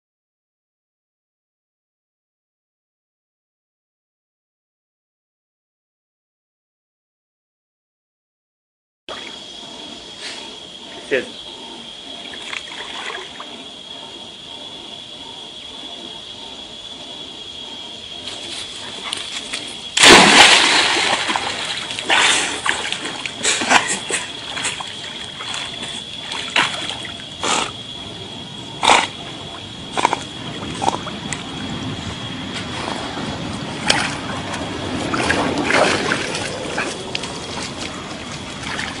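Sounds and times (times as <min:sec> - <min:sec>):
water splashing and sloshing: 0:10.4 - 0:14.0, 0:18.2 - 0:39.0
dog splashing into lake: 0:19.6 - 0:27.2, 0:35.1 - 0:36.9.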